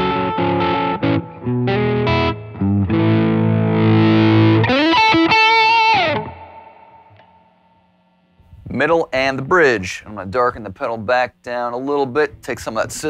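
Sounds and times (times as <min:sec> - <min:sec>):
overdriven electric guitar: 0:00.0 - 0:08.6.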